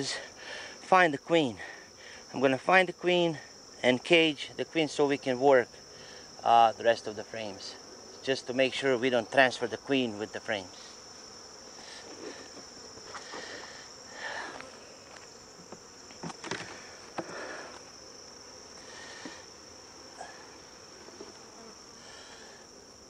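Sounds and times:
honeybees humming: 0.0s - 23.0s
hive frame cracking and knocking: 15.2s - 18.4s.

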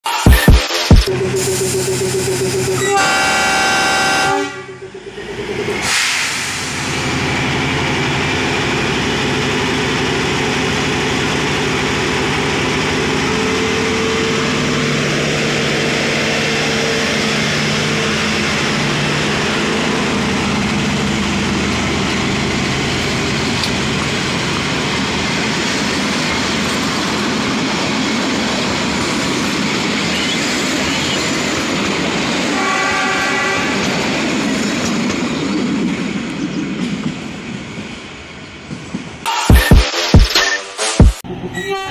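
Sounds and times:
diesel locomotive engine: 1.0s - 39.7s
train coaches rolling on rails: 1.1s - 39.5s
locomotive horn blast: 2.7s - 5.0s, 32.5s - 33.9s.

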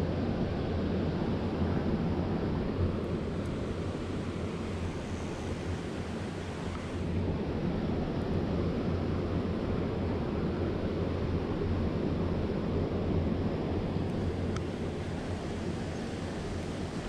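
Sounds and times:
river water rushing: 3.2s - 7.0s, 14.2s - 17.0s
faint tick: 6.7s - 6.9s.

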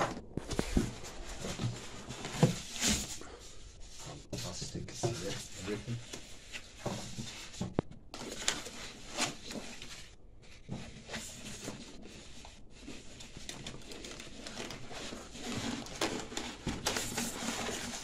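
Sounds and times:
small knocks and rubs: 0.0s - 3.2s, 3.8s - 18.0s
packaging rustling: 5.4s - 18.0s
plastic wrapping crinkling: 11.5s - 18.0s.

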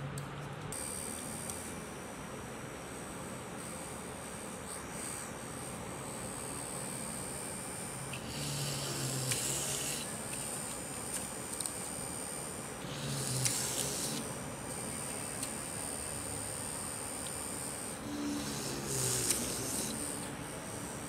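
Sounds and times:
small motor whining: 2.9s - 21.0s
drill bit hissing into wood: 8.1s - 12.0s, 12.8s - 14.2s, 17.8s - 21.0s.

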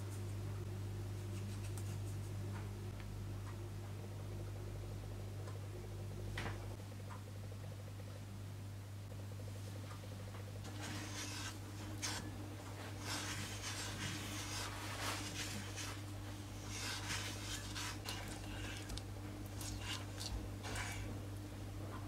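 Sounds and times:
steady low hum: 0.0s - 22.0s
spatula scraping sugar in a saucepan: 10.7s - 21.2s.

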